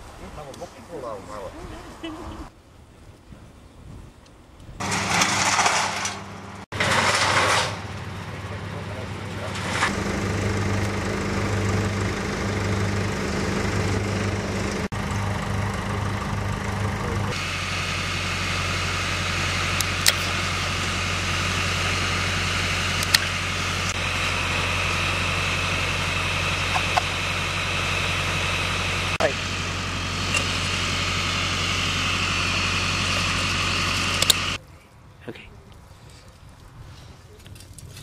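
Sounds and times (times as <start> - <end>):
engine low hum: 4.2 - 37.4
pruning shears snipping sticks: 19.8 - 20.4, 23.0 - 23.4, 34.0 - 34.6.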